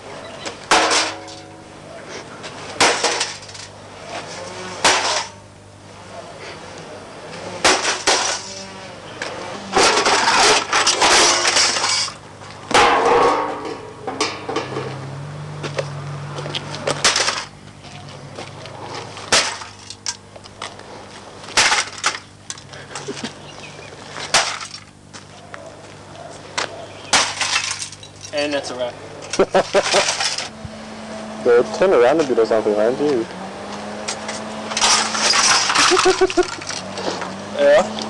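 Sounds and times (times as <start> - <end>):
loose parts clattering and tinkling: 9.9 - 12.2, 27.1 - 28.5, 29.2 - 30.5, 34.1 - 37.0.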